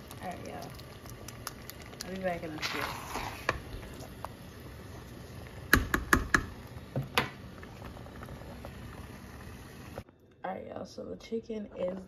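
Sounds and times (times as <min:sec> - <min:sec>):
metal spoon knocking on pot: 0:05.7 - 0:06.5.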